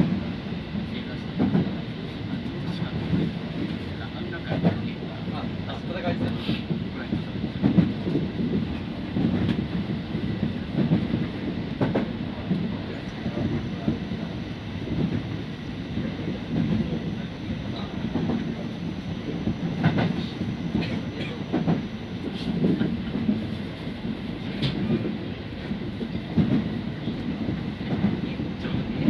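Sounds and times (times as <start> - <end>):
train wheels rumbling on rail: 0.0 - 29.0
track clicks and knocks: 7.1 - 14.0, 19.2 - 23.5, 24.4 - 25.2.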